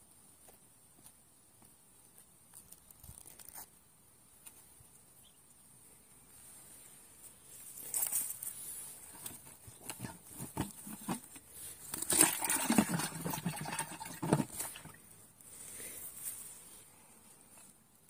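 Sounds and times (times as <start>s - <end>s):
cloth brushing over microphone: 16.0s - 16.8s.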